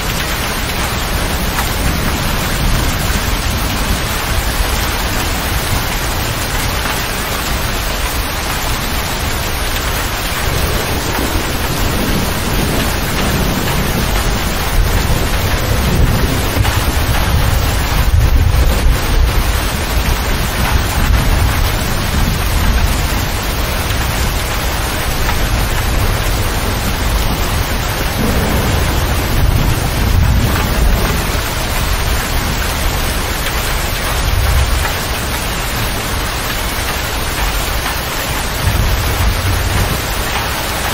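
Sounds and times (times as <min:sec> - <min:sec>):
heavy rain on cab roof: 0:00.0 - 0:40.9
low rumbles: 0:09.4 - 0:32.8.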